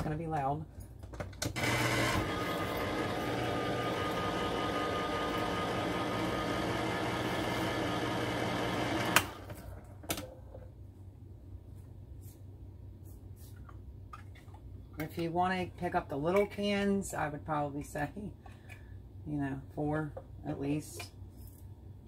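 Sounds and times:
electric can opener running: 1.4 - 9.8.

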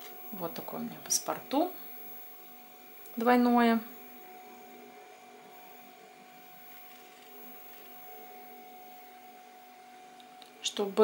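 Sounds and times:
background hum and hiss: 0.0 - 11.0
faint constant whine: 0.0 - 11.0.

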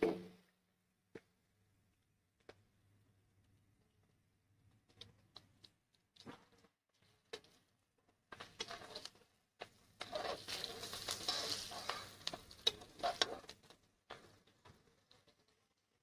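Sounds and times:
spoon scraping and tapping pan: 10.0 - 13.4
onions sizzling in hot oil: 10.0 - 13.5.

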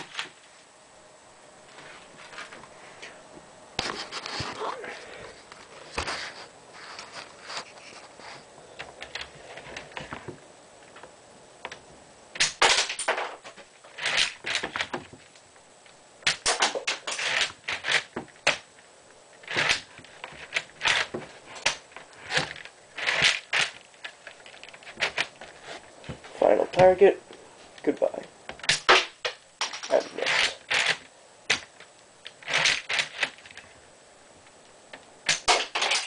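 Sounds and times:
toy rifle plastic clicks and clatters: 16.3 - 18.6.

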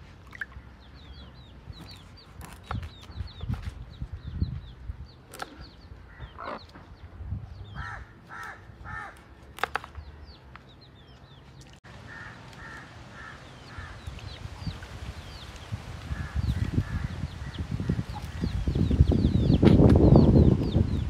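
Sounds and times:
small birds chirping: 0.3 - 21.0
hens clucking: 6.2 - 6.8.

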